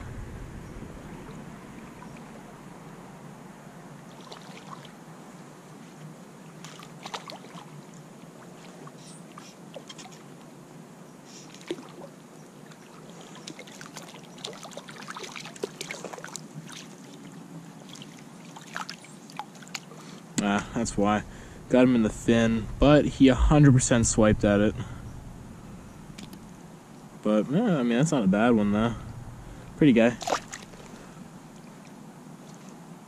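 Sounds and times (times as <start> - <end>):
water splashing: 4.0 - 5.0, 6.6 - 9.1, 11.5 - 26.7, 28.1 - 32.6
flowing water hiss: 11.2 - 33.0.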